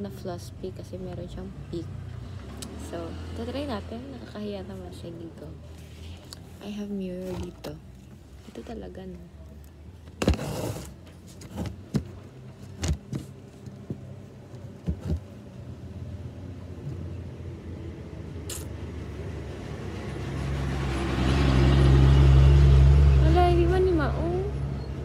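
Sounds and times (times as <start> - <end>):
vehicle engine rumble: 0.0 - 25.0
handling knocks and clicks: 11.0 - 15.4.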